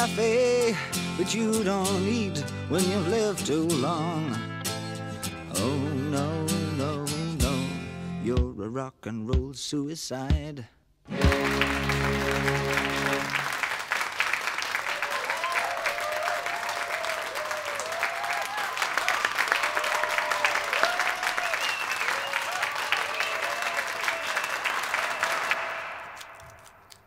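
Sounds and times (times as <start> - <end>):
musical chord ringing: 11.1 - 13.4
audience applauding: 11.1 - 27.0
people whooping and calling out: 14.9 - 25.6.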